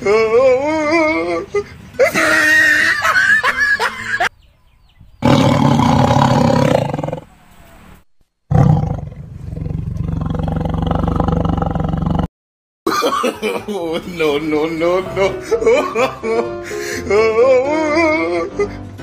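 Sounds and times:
tiger roaring: 0:05.2 - 0:07.4, 0:08.5 - 0:12.3.

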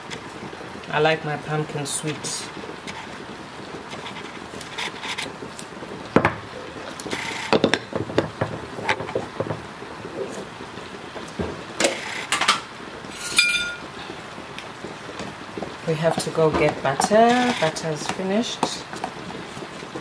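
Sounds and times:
kitchen utensils clattering: 0:11.8 - 0:13.9, 0:15.9 - 0:18.8
ringing metallic clink: 0:13.2 - 0:13.8.

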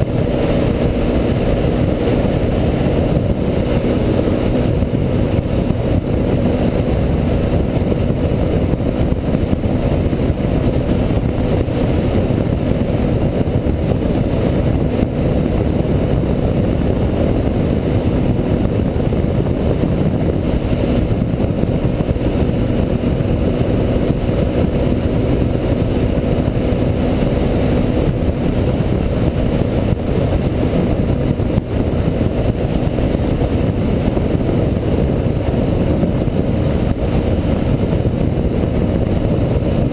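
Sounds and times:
quad bike engine running: 0:00.0 - 0:39.9
wind rushing: 0:00.0 - 0:39.9.

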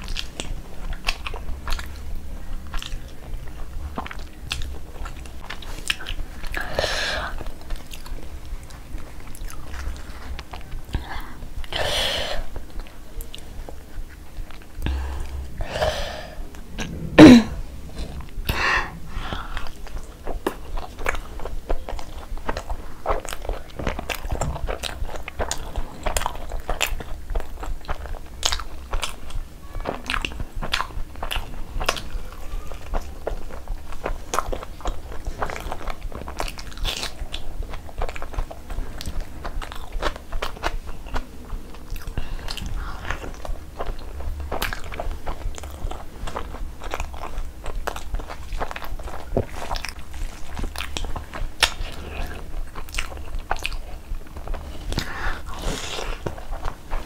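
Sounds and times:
wet chewing: 0:00.0 - 0:17.1, 0:18.0 - 0:57.0.

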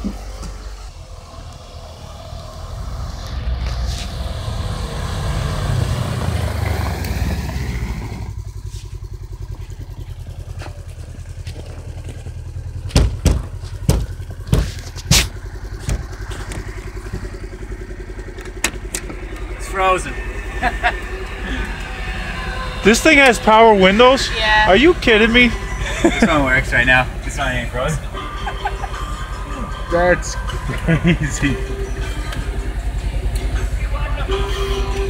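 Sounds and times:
vehicle engine running and idling: 0:00.0 - 0:35.0
sharp knocks: 0:12.9 - 0:16.6.

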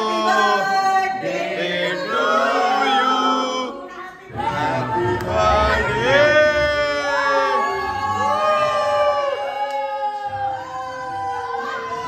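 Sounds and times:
group of voices singing: 0:00.0 - 0:09.4.

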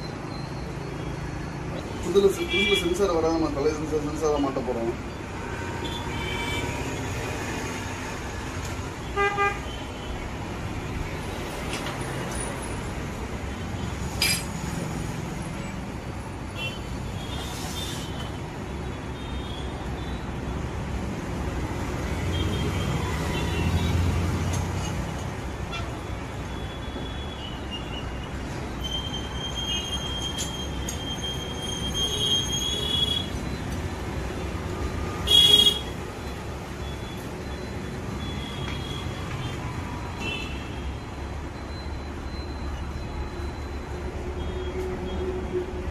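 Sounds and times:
road traffic passing: 0:00.0 - 0:45.9
vehicle horn toots: 0:35.2 - 0:35.9.

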